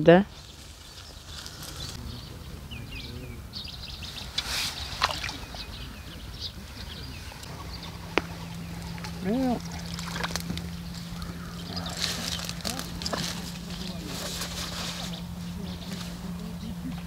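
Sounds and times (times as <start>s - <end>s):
low outdoor rumble: 0.0s - 17.0s
small birds chirping: 0.0s - 17.0s
steady low hum: 0.0s - 17.0s
rustling: 0.3s - 2.0s, 7.3s - 16.5s.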